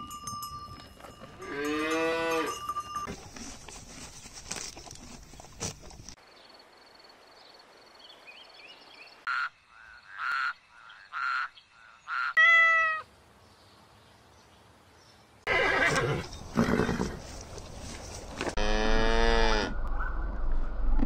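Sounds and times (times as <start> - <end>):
cowbell clanking: 0.0 - 3.2
cow mooing: 1.4 - 2.6, 18.6 - 19.8.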